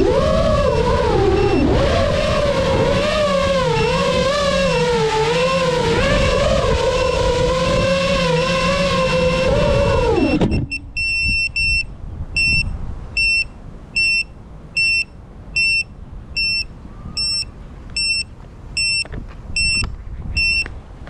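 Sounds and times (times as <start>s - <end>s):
drone motor whine: 0.0s - 11.8s
short high-pitched beeps: 9.8s - 20.7s.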